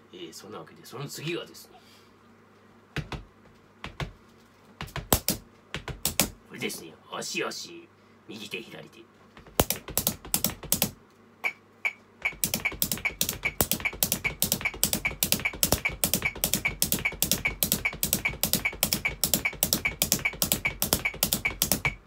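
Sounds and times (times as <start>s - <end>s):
feet thumping on floor: 3.0s - 4.2s, 4.8s - 6.4s, 9.4s - 10.7s
sticks tapping rubber practice pad: 3.0s - 4.2s, 4.8s - 6.4s, 9.4s - 22.0s.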